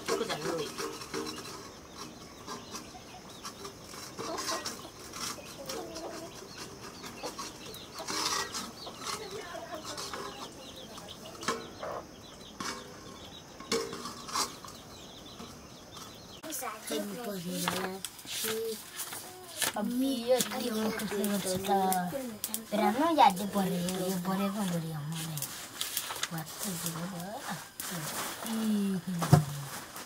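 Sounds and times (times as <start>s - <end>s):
metal pots and plates clinking: 0.0s - 10.5s
chickens clucking: 0.0s - 30.0s.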